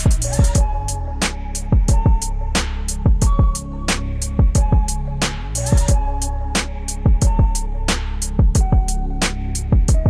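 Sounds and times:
hi-hat ticks: 0:00.0 - 0:00.6, 0:01.2 - 0:07.6
hip-hop beat: 0:00.0 - 0:10.0.

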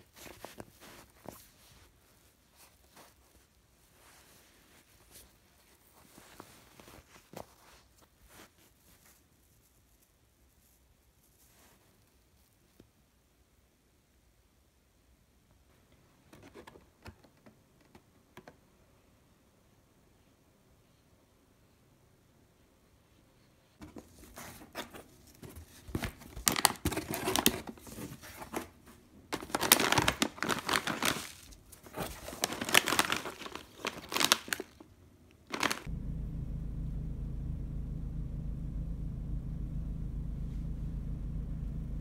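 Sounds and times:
plastic snack bags crinkling: 0:26.0 - 0:28.0, 0:29.4 - 0:35.9
steady low hum: 0:35.9 - 0:42.0.

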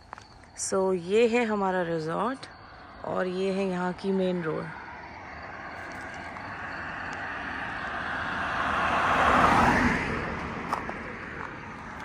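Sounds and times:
car driving past: 0:04.8 - 0:12.0.

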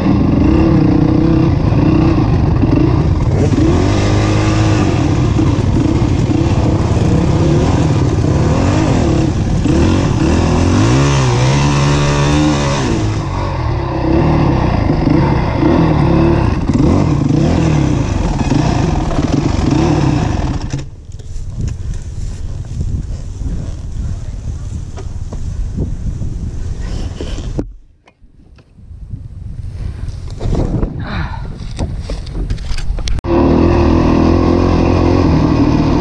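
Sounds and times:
dirt bike engine revving: 0:00.0 - 0:20.9, 0:33.2 - 0:36.0.

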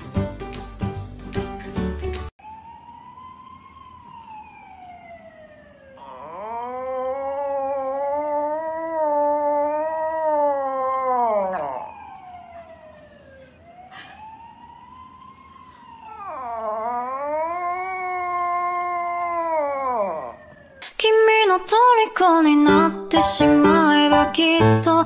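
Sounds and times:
small dog howling: 0:06.0 - 0:12.2, 0:16.1 - 0:20.7.

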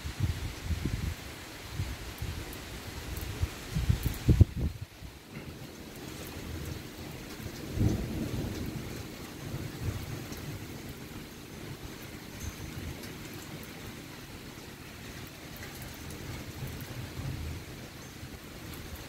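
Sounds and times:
steady rain: 0:00.0 - 0:19.0
thunder rumbling: 0:03.1 - 0:14.2, 0:15.4 - 0:19.0.

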